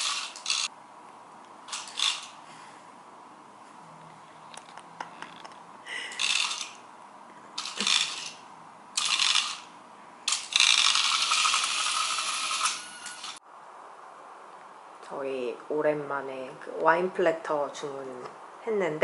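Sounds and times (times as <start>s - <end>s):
toy snake rattling on tiles: 0.0s - 0.7s, 1.7s - 2.4s, 6.1s - 6.8s, 7.6s - 8.4s, 9.0s - 9.7s, 10.3s - 13.4s.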